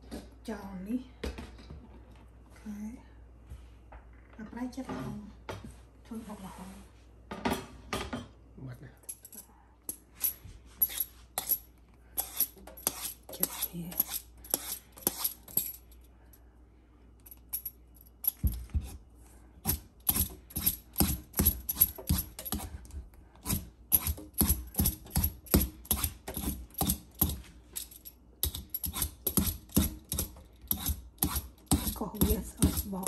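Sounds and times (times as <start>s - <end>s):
hand peeler scraping papaya skin: 12.2s - 15.4s, 19.6s - 22.7s, 23.4s - 27.3s, 28.5s - 33.0s.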